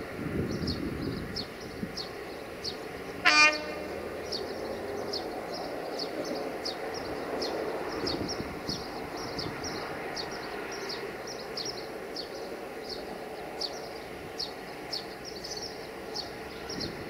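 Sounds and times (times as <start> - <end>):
freight train rumble: 0.0 - 17.0
locomotive horn blast: 3.2 - 4.1.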